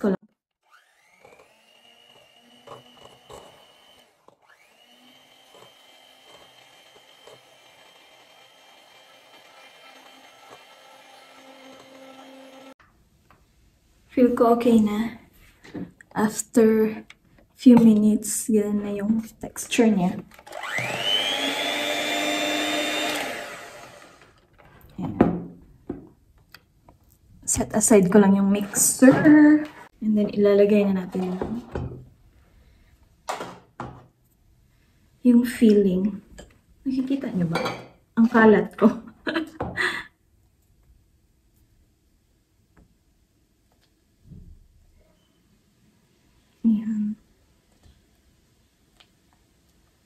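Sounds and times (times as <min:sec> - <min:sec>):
electric hand mixer whining: 0:00.6 - 0:12.8, 0:20.3 - 0:24.4.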